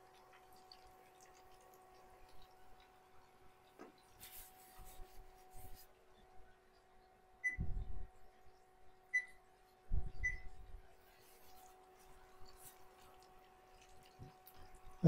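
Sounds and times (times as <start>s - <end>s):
faint steady hum: 0.0s - 15.0s
paper towel rustling: 4.2s - 5.9s.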